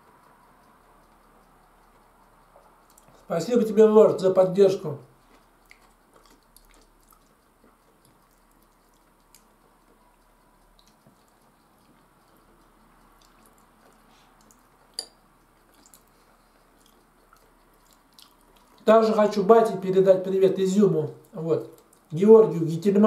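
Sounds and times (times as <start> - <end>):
soft chewing: 0.0 - 23.0
metal fork clicking on bowl: 14.9 - 15.2.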